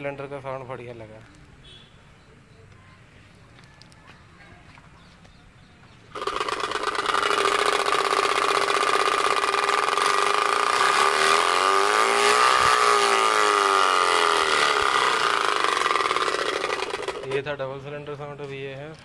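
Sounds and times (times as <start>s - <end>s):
bicycle spokes buzzing like motorbike: 6.1s - 17.5s.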